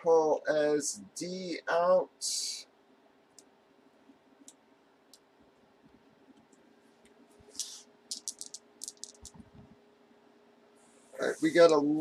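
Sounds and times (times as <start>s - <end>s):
computer mouse clicks: 3.3s - 3.5s, 4.4s - 5.3s.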